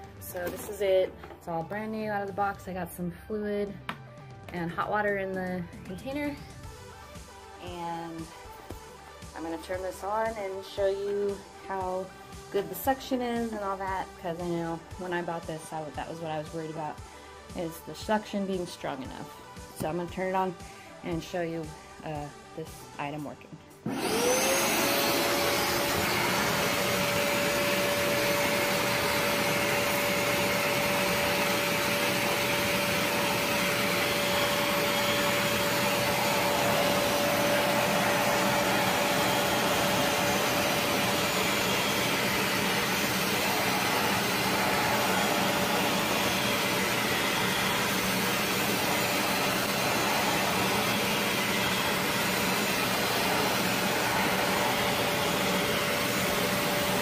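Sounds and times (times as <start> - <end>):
carpet cleaner suction motor whine: 23.8 - 57.0.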